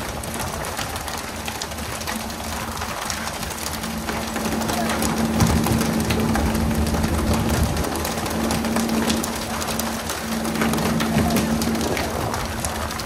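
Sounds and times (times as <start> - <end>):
boat engine hum: 0.0 - 13.0
water spray splashing: 0.0 - 13.0.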